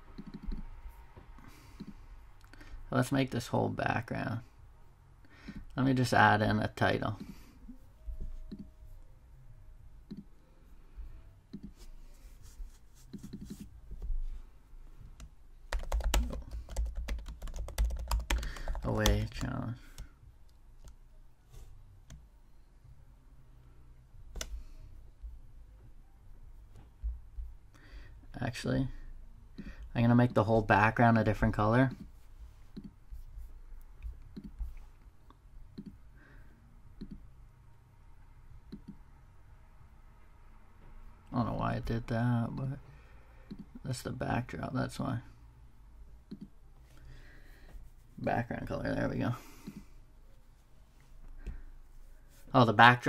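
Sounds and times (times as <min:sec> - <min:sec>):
faint low hum: 0:00.0 - 0:53.0
computer mouse clicks: 0:00.1 - 0:00.7, 0:08.5 - 0:08.7, 0:10.1 - 0:10.4, 0:11.5 - 0:11.8, 0:34.3 - 0:34.6, 0:35.8 - 0:36.0, 0:37.0 - 0:37.2, 0:38.7 - 0:39.0, 0:43.5 - 0:43.8, 0:46.3 - 0:46.5.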